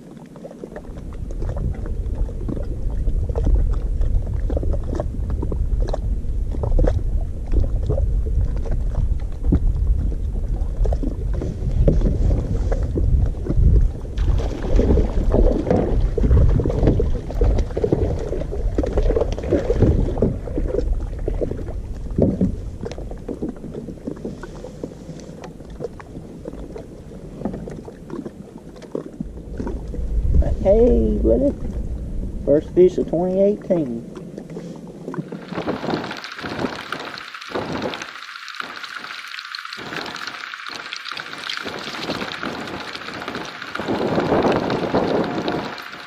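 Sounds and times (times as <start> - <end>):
water splashing: 0.0 - 46.0
wind rumbling on microphone: 0.0 - 46.0
knocks and scrapes on plastic kayak: 11.3 - 13.8.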